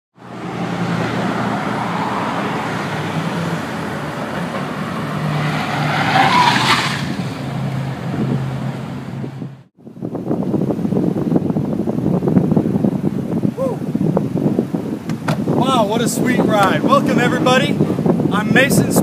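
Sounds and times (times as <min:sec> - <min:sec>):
road traffic noise: 0:00.1 - 0:19.0
car driving past: 0:00.2 - 0:09.7.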